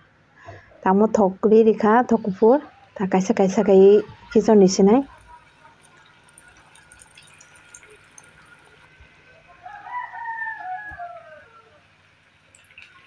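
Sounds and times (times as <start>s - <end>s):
rooster crowing: 9.3s - 12.0s.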